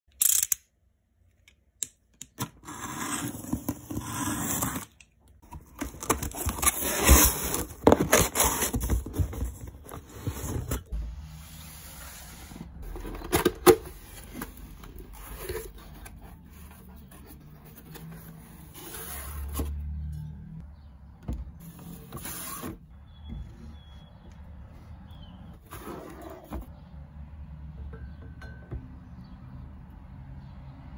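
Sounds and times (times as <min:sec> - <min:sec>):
cardboard rustling: 0:05.4 - 0:11.0.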